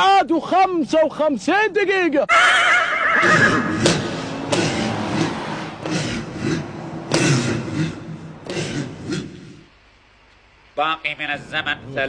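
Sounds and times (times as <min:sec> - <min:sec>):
car driving fast: 0:02.8 - 0:08.5
sharp knocks: 0:03.8 - 0:04.8.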